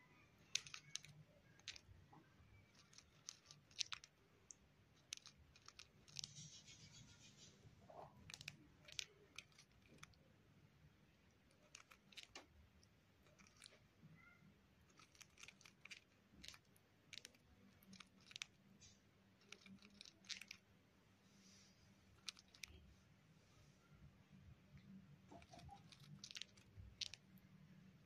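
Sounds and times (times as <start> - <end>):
bird grinding its beak: 2.7 - 4.1, 11.5 - 12.4, 13.2 - 13.8, 14.9 - 18.5, 19.4 - 20.6, 25.3 - 27.2.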